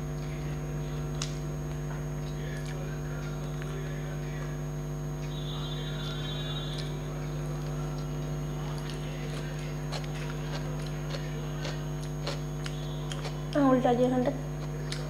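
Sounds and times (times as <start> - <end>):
electrical hum: 0.0 - 15.0
person chewing with mouth clicks: 1.0 - 3.8, 6.7 - 13.7, 14.4 - 15.0.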